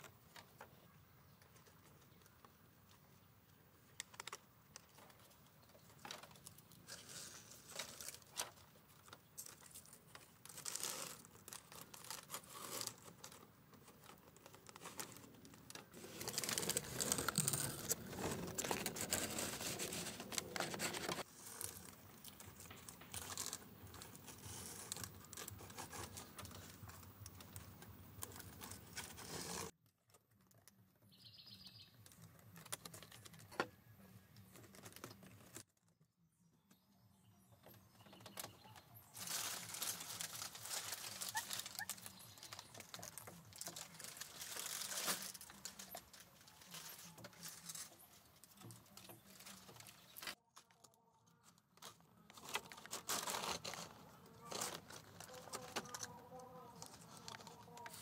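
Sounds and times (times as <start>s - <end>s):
rustling and crackling: 0.0s - 30.9s, 37.6s - 58.0s
bird trill: 31.1s - 32.0s.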